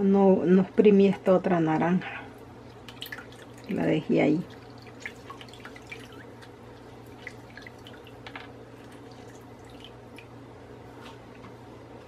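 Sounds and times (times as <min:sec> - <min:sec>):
low background hum: 0:00.0 - 0:12.0
juice dripping and crackling: 0:02.3 - 0:10.4.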